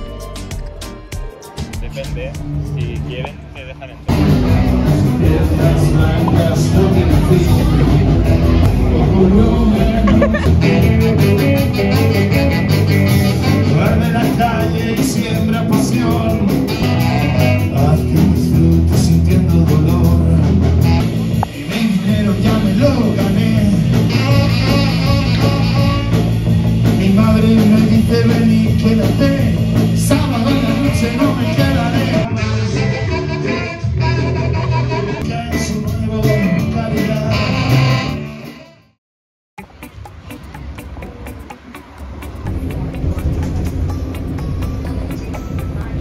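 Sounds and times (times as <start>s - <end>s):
blues rock band with singing: 3.4s - 38.7s.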